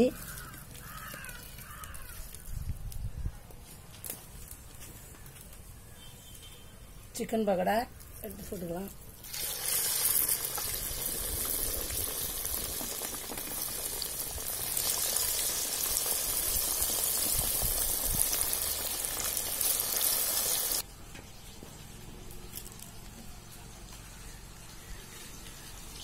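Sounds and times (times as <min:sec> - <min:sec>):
food frying in hot oil: 0:09.2 - 0:20.8.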